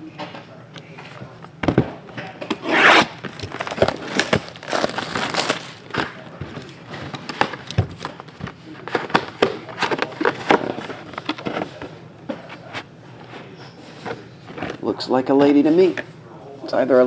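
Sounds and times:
plastic wrap crinkling and tearing: 0:02.7 - 0:06.2.

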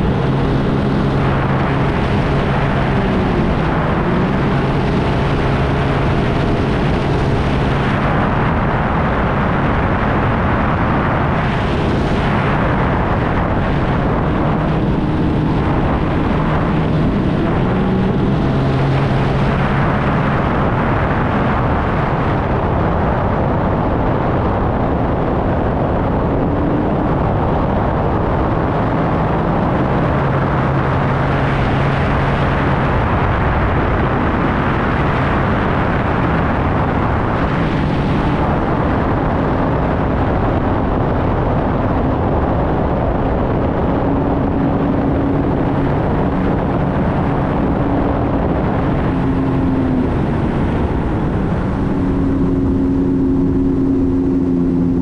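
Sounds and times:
rush of wind and water: 0:00.0 - 0:55.0
watercraft engine hum: 0:00.0 - 0:55.0.

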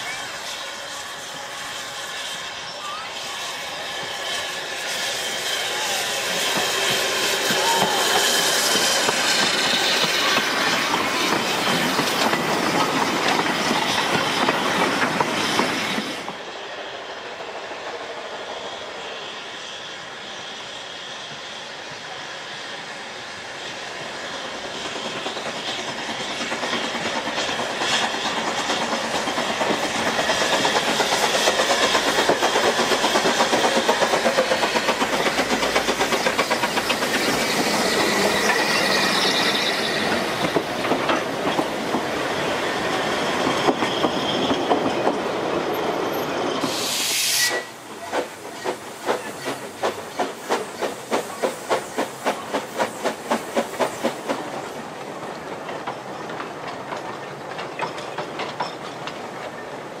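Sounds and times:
steam hissing: 0:00.0 - 1:00.0
steam train running past: 0:00.0 - 1:00.0
wheels clicking over rail joints: 0:48.1 - 0:59.8.

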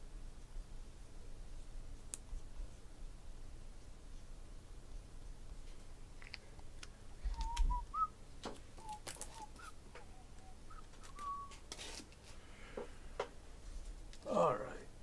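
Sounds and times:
soft whistling: 0:07.3 - 0:08.2, 0:08.8 - 0:11.7.

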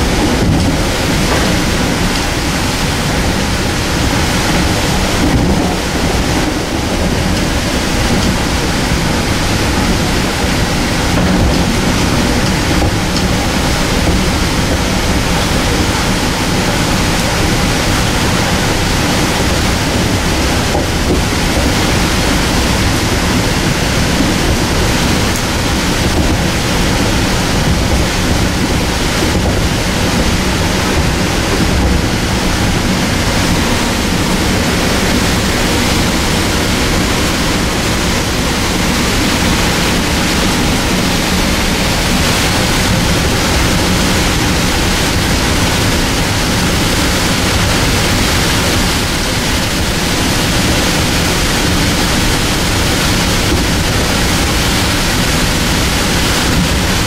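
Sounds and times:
railcar wheels rumbling on rail: 0:00.0 - 0:57.0.

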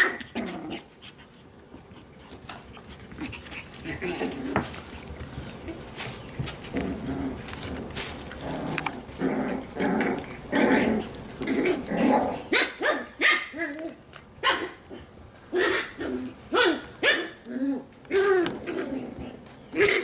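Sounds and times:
puppies growling: 0:00.0 - 0:20.0
puppies barking: 0:08.8 - 0:20.0.

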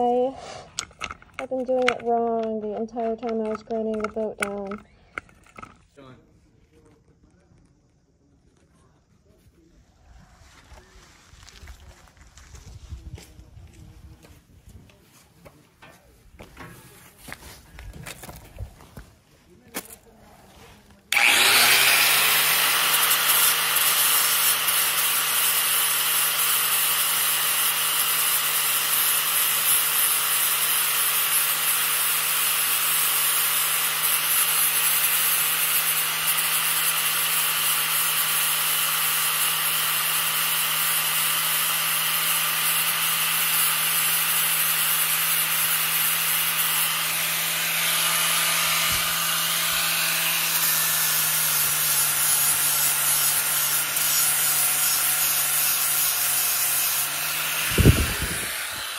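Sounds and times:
constant rasping: 0:00.1 - 0:06.0
angle grinder sanding fiberglass: 0:21.1 - 0:58.9.

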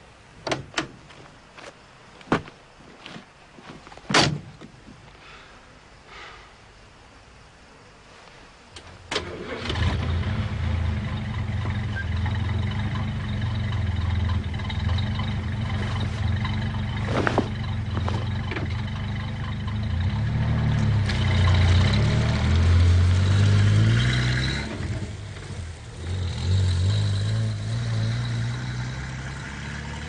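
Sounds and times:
vehicle engine running: 0:09.5 - 0:30.0.

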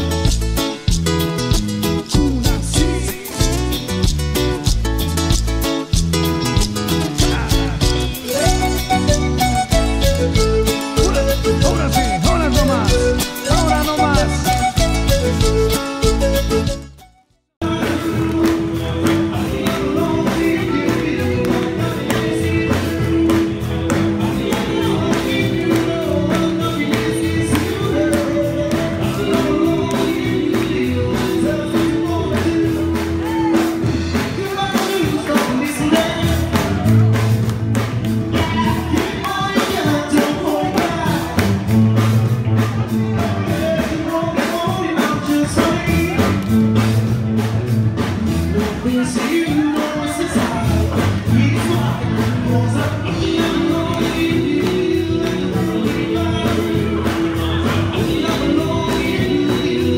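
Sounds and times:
upbeat dance music: 0:00.0 - 0:23.3
person singing: 0:01.9 - 0:04.8, 0:06.6 - 0:17.0, 0:17.6 - 0:37.4, 0:38.3 - 0:47.0, 0:48.3 - 0:59.9.

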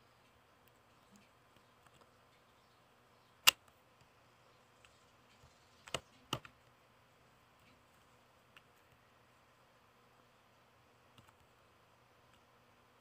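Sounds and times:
computer mouse clicks: 0:04.8 - 0:06.7, 0:11.1 - 0:11.5.

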